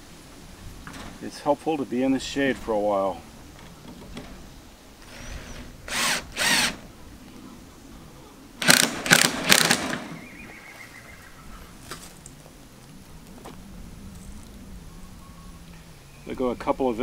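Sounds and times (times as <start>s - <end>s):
cordless drill driving screws: 5.0s - 6.8s, 8.6s - 10.2s.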